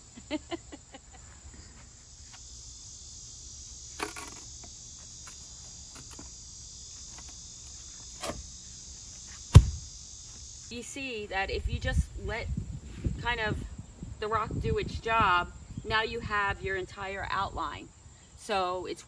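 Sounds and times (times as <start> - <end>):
insects chirring: 0.0 - 19.0
light knocks from garden work: 9.5 - 9.8
heavy thump: 9.5 - 9.9.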